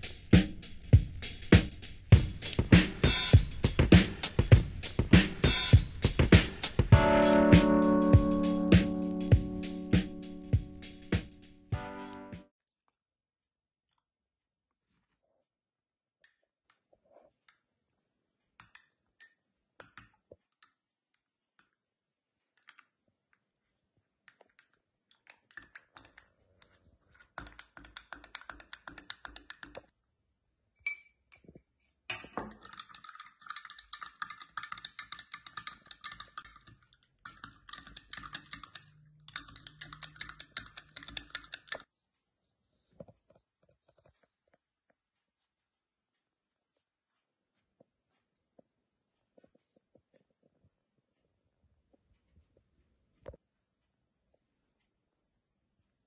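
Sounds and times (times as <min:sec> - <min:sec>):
metal spoon clinking against glass: 0:30.8 - 0:31.4.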